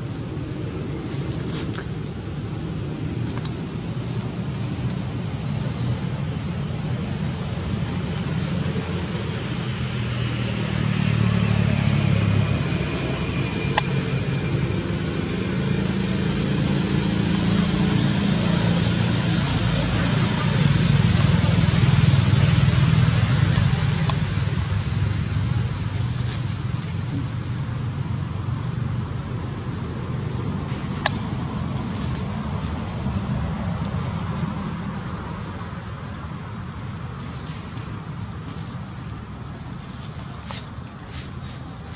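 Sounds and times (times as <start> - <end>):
road traffic engine hum: 0.0 - 41.9.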